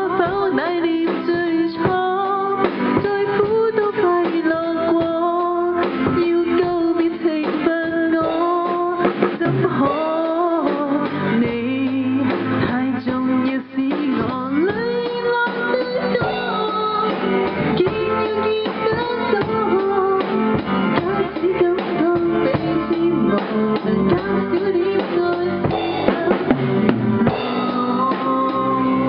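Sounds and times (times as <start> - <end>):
live band playing: 0.0 - 29.0
sliding lead melody: 0.0 - 29.0.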